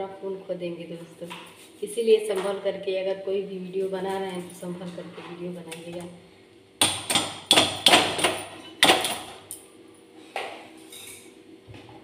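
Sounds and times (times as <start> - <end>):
hard objects knocking in kitchen: 6.8 - 9.4.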